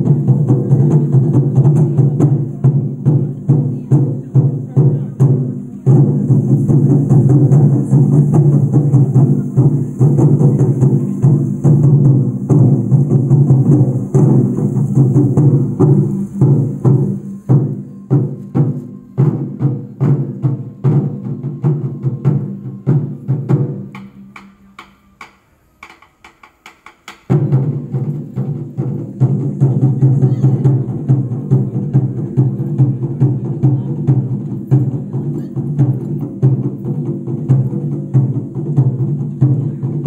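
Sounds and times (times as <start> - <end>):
taiko drums: 0.0 - 40.0.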